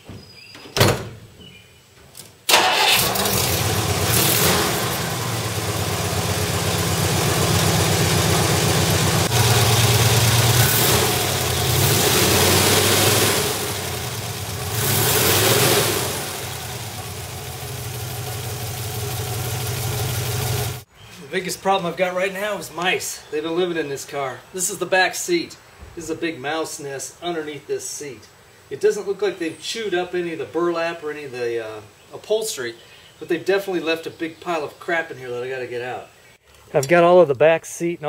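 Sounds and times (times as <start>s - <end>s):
car engine starting and revving: 2.5s - 20.9s.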